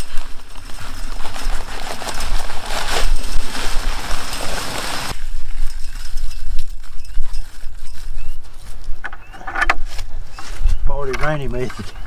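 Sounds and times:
dry concrete mix pouring: 0.0 - 5.2.

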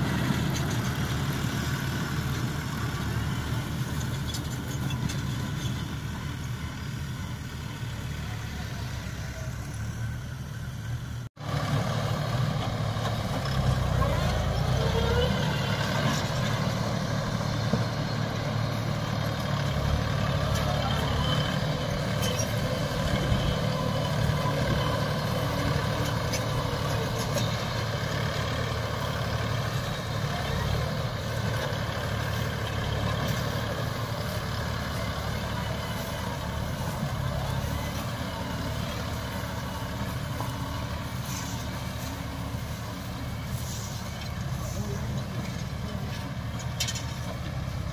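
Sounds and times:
tractor engine running: 0.0 - 47.9.

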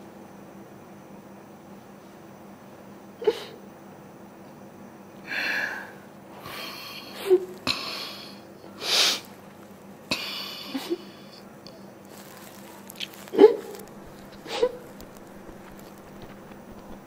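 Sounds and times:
woman sobbing and sniffing: 13.3 - 13.8, 14.4 - 14.8
woman whimpering: 13.3 - 13.8, 14.4 - 14.8.

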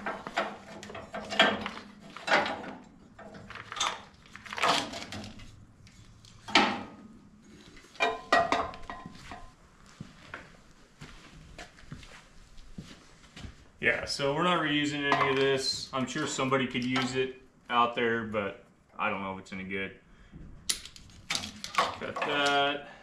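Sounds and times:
metallic clanks and rattles: 0.0 - 5.4.

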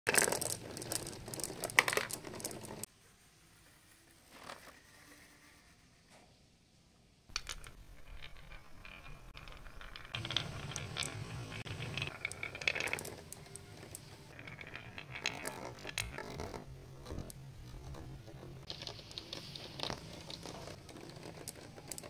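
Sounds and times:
marbles clattering down track: 0.1 - 2.9, 7.3 - 22.0
marbles rolling in wooden groove: 0.1 - 2.9, 7.3 - 22.0.

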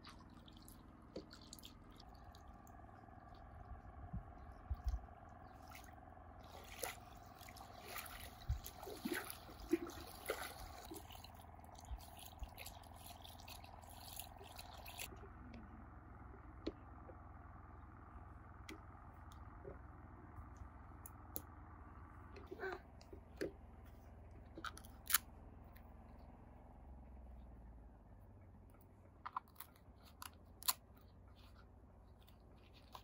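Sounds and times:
water trickling and dripping: 0.0 - 15.1.

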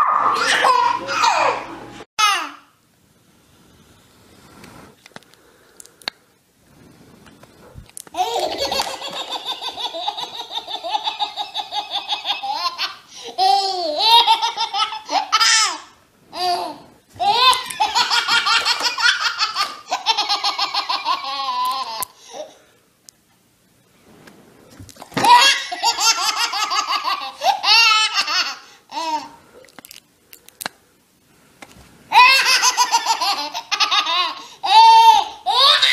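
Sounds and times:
baby belly-laughing: 32.1 - 35.9.

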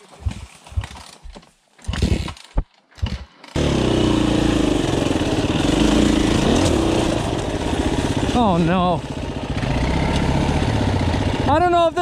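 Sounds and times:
dirt bike engine running: 3.0 - 12.0.

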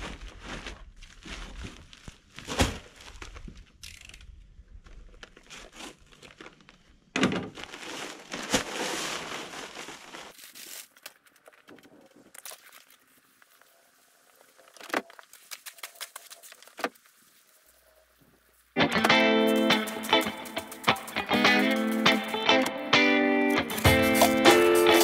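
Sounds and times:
paper bag crinkling: 7.5 - 17.8, 19.0 - 22.7, 23.5 - 25.0
dry mix pouring: 19.1 - 22.7, 23.6 - 25.0.

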